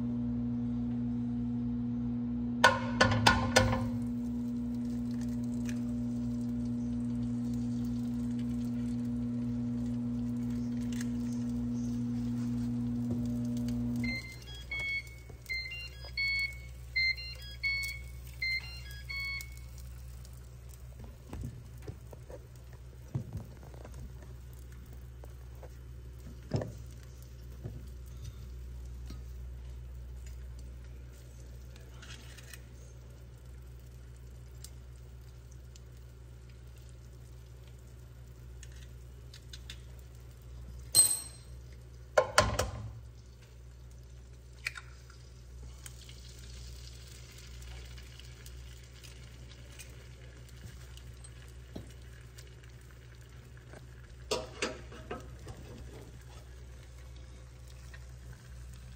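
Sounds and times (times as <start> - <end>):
steady low hum: 0.0 - 58.9
egg frying in a pan: 2.6 - 58.9
electronic alarm beeping: 14.0 - 19.7.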